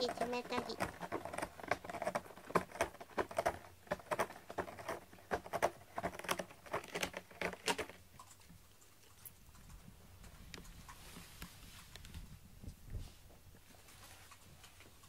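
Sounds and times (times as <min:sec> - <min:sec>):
cat scratching cardboard: 0:00.0 - 0:08.0.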